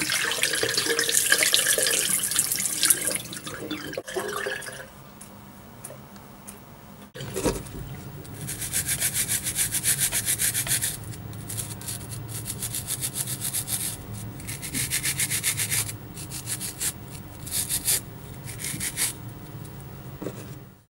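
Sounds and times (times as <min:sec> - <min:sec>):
steady low hum: 0:04.6 - 0:20.9.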